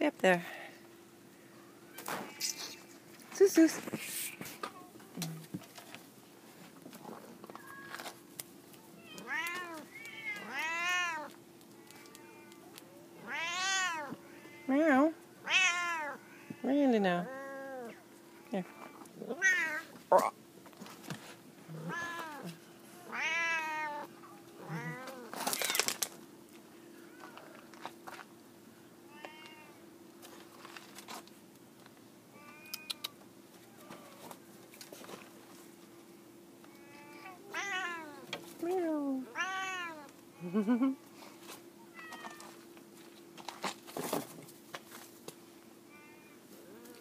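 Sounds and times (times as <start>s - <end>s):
cat meowing: 9.0s - 12.6s, 13.2s - 14.8s, 15.4s - 16.6s, 18.6s - 19.9s, 21.7s - 25.3s, 29.1s - 29.7s, 36.7s - 38.2s, 39.3s - 40.1s, 41.9s - 42.5s.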